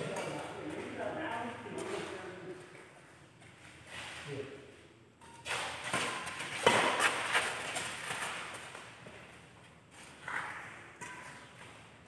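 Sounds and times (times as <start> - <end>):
racket striking shuttlecock: 5.3 - 8.6, 10.2 - 11.5.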